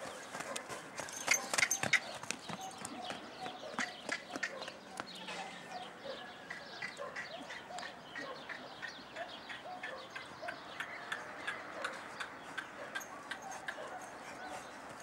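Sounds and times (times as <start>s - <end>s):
horse hoofbeats on wet sand: 0.0s - 5.1s
birds chirping: 0.0s - 15.0s.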